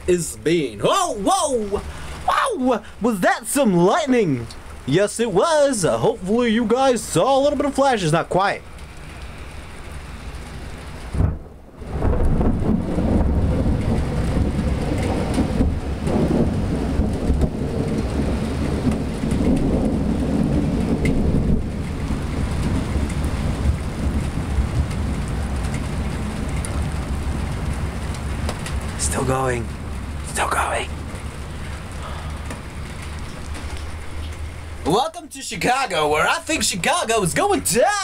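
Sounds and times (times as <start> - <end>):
rain on wet pavement: 0.0 - 38.0
low rumble of thunder: 8.6 - 34.9.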